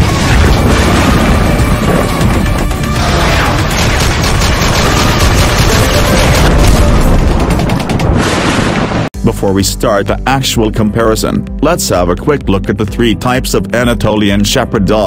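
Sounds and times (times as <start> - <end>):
dramatic intro music: 0.0 - 8.3
rapid gunfire: 0.0 - 8.4
booms: 0.0 - 9.1.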